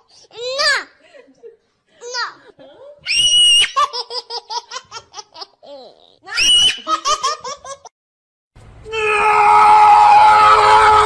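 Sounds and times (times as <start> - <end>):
child squealing: 3.0 - 3.8, 6.3 - 6.9
small child laughing: 3.6 - 7.9.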